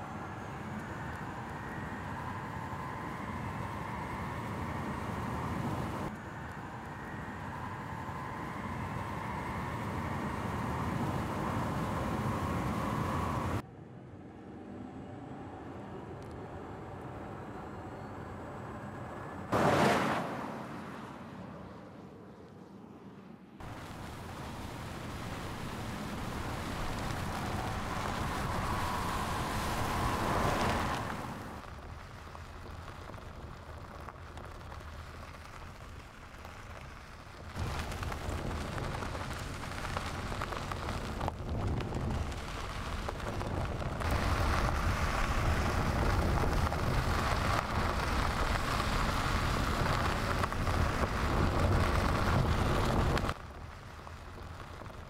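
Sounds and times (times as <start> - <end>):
tyres rolling over gravel: 23.6 - 55.0.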